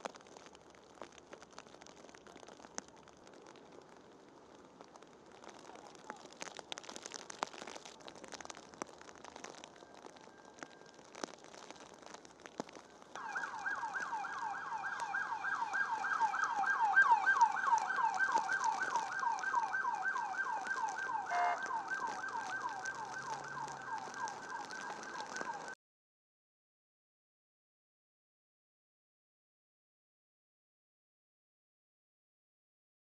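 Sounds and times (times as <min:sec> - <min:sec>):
police siren yelping: 0:13.2 - 0:25.8
short siren blast: 0:13.2 - 0:25.8.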